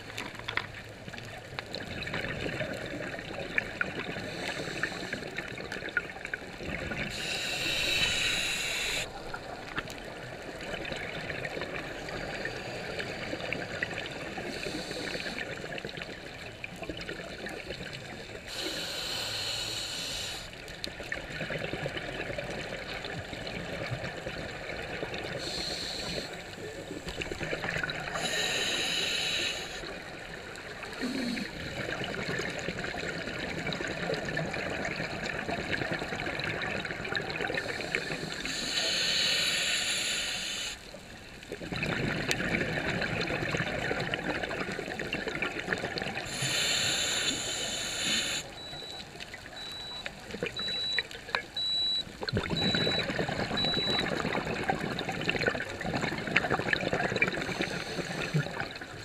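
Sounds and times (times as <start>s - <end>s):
underwater regulator bubbles hissing: 6.6s - 9.4s, 27.1s - 30.0s, 41.7s - 49.0s, 52.3s - 58.9s
rushing bursts of bubbles: 21.1s - 28.4s, 29.8s - 38.5s, 41.5s - 48.8s, 52.2s - 59.0s.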